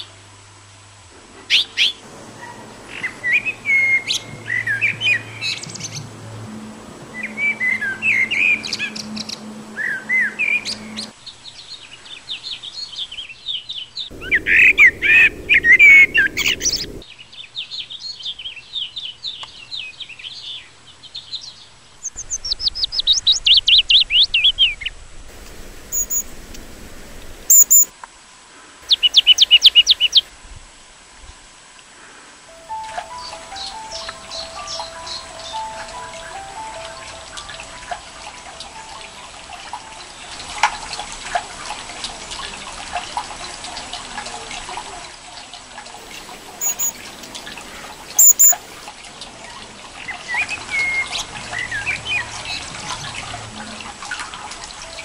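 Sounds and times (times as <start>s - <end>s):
songbirds singing and chirping: 14.1s - 17.0s, 25.3s - 27.9s, 28.8s - 30.3s, 32.5s - 39.2s, 46.0s - 48.9s.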